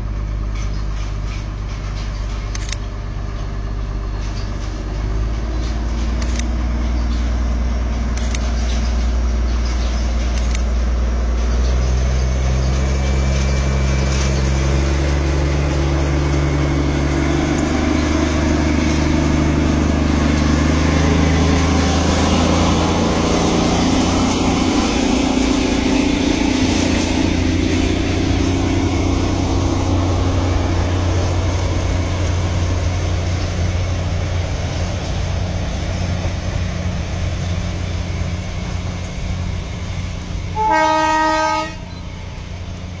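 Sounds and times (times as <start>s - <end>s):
vehicle rumbling: 0.0s - 43.0s
vehicle horn: 40.6s - 42.0s.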